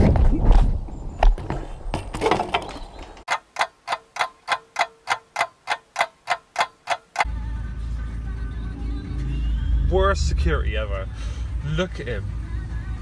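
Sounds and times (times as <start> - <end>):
clock ticking sound effect: 3.3 - 7.3.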